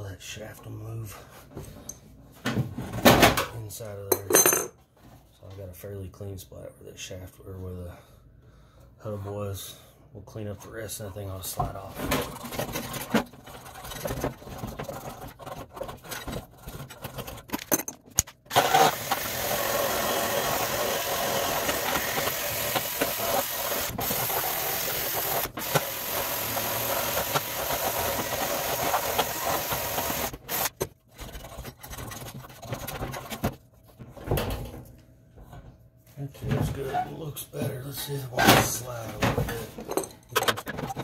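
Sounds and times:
metal parts clicking and knocking: 0:16.1 - 0:18.5, 0:39.8 - 0:41.0
handheld power tool running: 0:18.5 - 0:30.8.

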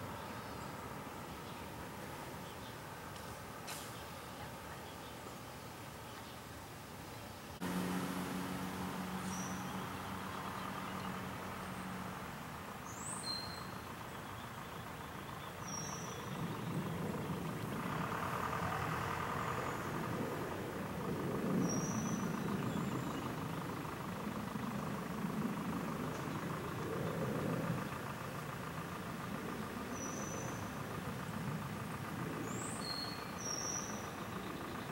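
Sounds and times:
low steady hum: 0:00.0 - 0:34.9
vehicle engine noise: 0:00.0 - 0:34.9
bird chirps: 0:09.1 - 0:12.0, 0:12.8 - 0:17.0, 0:21.6 - 0:23.4, 0:29.9 - 0:30.8, 0:32.4 - 0:34.9.

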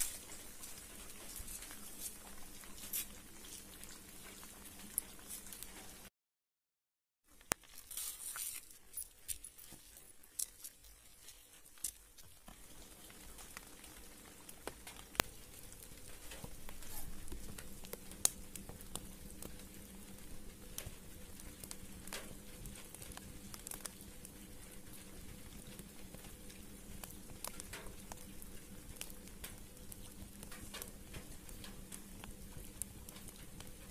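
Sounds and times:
leaves rustling and crinkling: 0:00.0 - 0:06.1, 0:07.3 - 0:33.9
light ticks and crackles: 0:00.0 - 0:06.1, 0:07.3 - 0:33.9
faint steady hum: 0:07.3 - 0:33.9.

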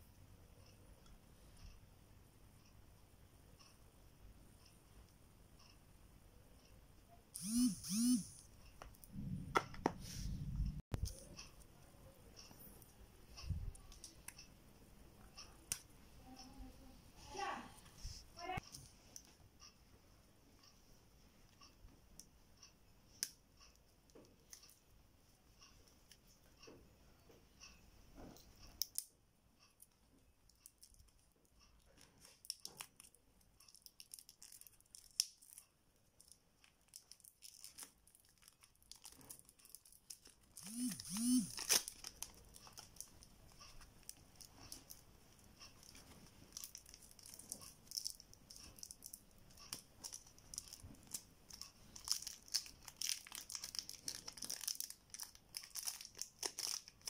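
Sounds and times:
plastic wrap crinkling and tearing: 0:31.8 - 0:40.6, 0:41.5 - 0:45.0, 0:45.8 - 0:57.0.

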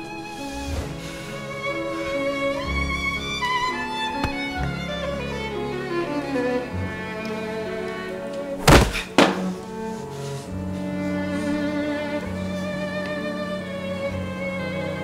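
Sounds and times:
bowed string music: 0:00.0 - 0:15.0
loud thumps: 0:08.6 - 0:09.7.

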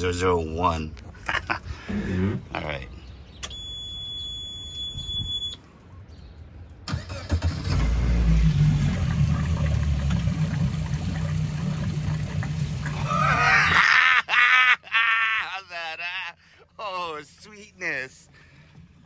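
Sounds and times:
key-on beep: 0:03.4 - 0:05.6
outboard motor idling: 0:08.1 - 0:13.2.

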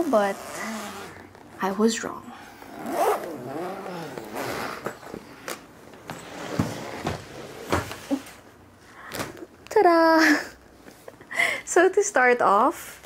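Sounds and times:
zipper rasp: 0:00.0 - 0:01.6, 0:02.4 - 0:05.2.

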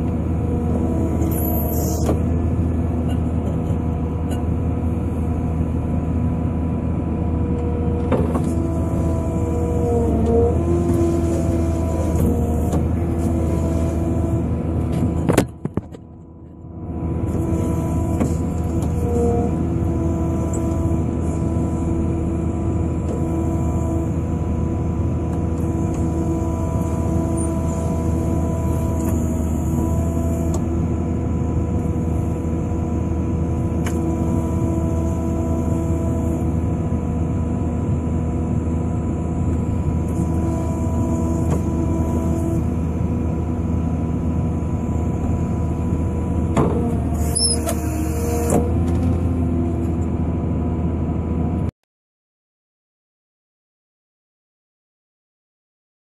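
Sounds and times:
excavator diesel engine and hydraulics: 0:00.0 - 0:51.7
mower cutting grass: 0:08.4 - 0:15.3, 0:17.2 - 0:36.7, 0:39.8 - 0:44.8, 0:45.5 - 0:49.5.

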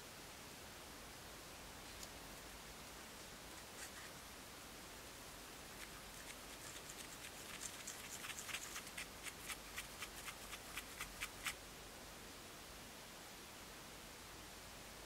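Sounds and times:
stick stirring sticky paint: 0:05.7 - 0:11.6.

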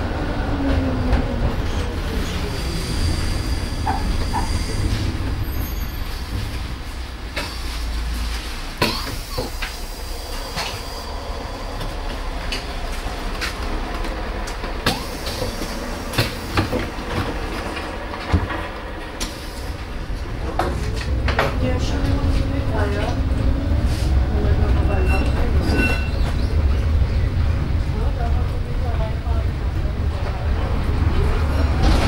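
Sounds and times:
track clacks and knocks: 0:00.0 - 0:32.0
tram wheels rumbling on rails: 0:00.0 - 0:32.0
high wheel squeal: 0:02.5 - 0:06.5, 0:24.6 - 0:26.5.

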